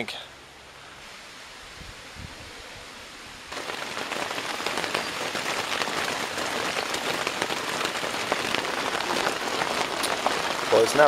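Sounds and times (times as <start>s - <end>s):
heavy rain falling on water: 3.5s - 11.0s.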